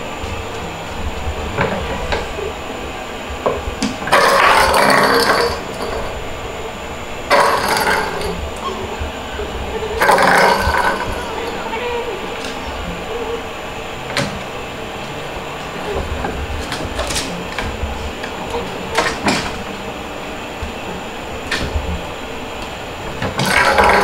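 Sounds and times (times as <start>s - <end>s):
plastic ball toy rattling: 10.0s - 11.6s, 23.2s - 24.0s.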